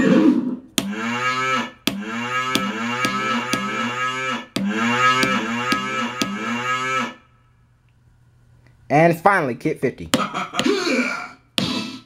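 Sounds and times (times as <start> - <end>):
drum pad hits: 0.8 - 1.1, 1.8 - 4.0, 4.6 - 6.6
pitch-bending sound effects: 0.8 - 7.3.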